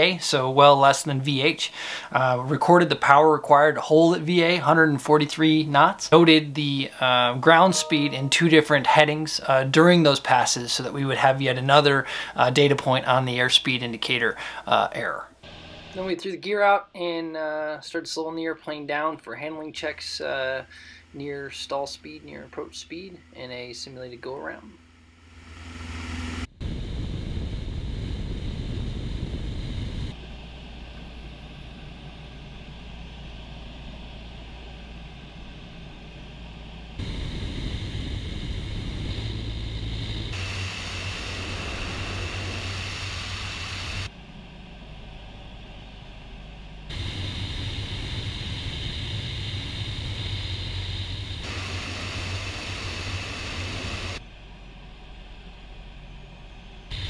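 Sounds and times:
propeller airplane drone: 0.2 - 7.8, 10.7 - 12.5, 15.4 - 16.1, 20.0 - 57.0
rushing airflow: 26.5 - 54.2.

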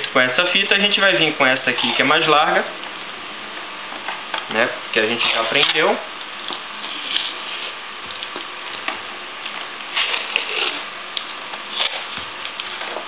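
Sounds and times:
tape rustling: 4.0 - 13.0
tape peeling off roll: 6.5 - 13.0.

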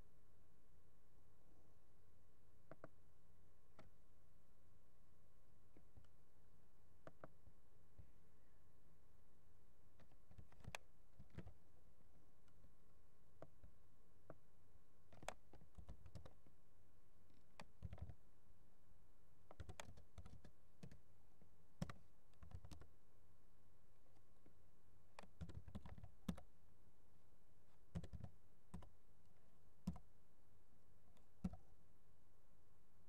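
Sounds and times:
computer keyboard typing: 10.0 - 11.6, 15.1 - 16.4, 17.6 - 18.2, 19.5 - 21.1, 21.8 - 22.9, 25.1 - 26.5, 27.9 - 29.0, 29.8 - 30.1, 31.2 - 31.6.

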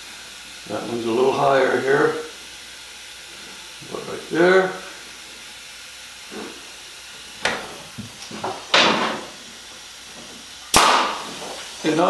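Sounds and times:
short air hiss: 4.6 - 12.0
pneumatic stapler shot: 10.7 - 11.5.

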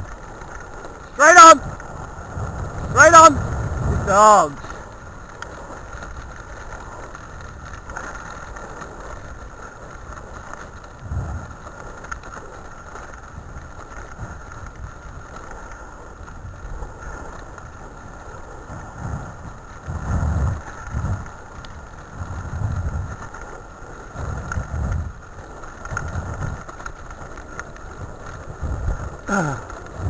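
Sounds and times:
low bumps: 0.0 - 30.0
rig rattling on gravel track: 0.0 - 30.0
wind on microphone: 1.6 - 5.0, 10.9 - 11.8, 16.2 - 23.5, 24.1 - 30.0.

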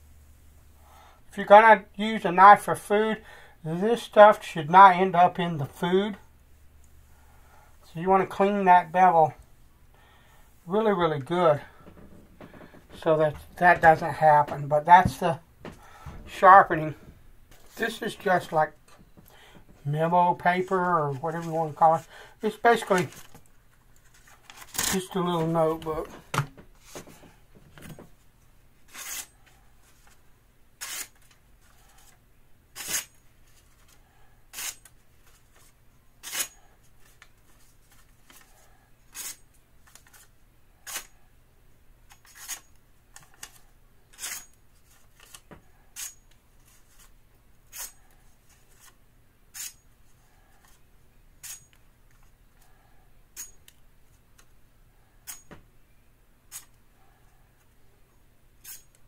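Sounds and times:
knife slicing paper: 32.8 - 33.1.

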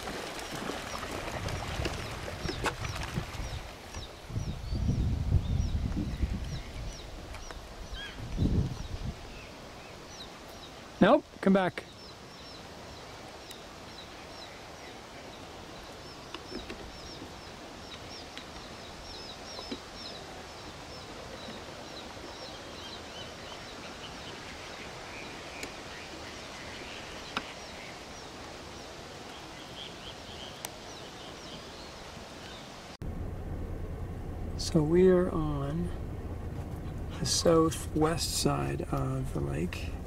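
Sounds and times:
outdoor background noise: 0.0 - 40.0
small birds chirping: 1.8 - 32.8.

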